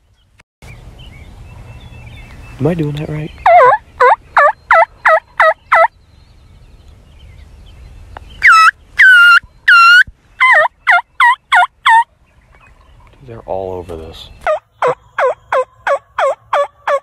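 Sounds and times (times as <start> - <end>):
turkey call yelps: 3.4 - 5.9, 8.4 - 12.1, 14.4 - 17.0.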